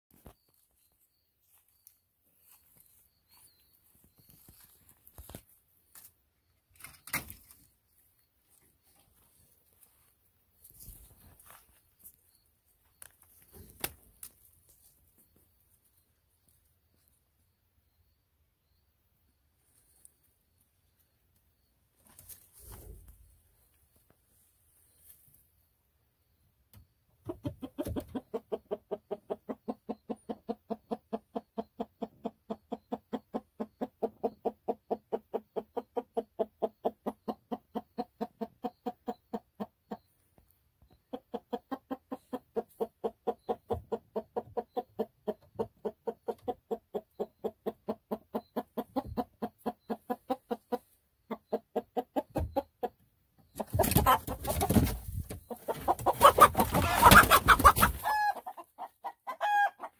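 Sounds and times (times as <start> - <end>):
hen clucking: 27.2 - 40.2, 40.9 - 59.9.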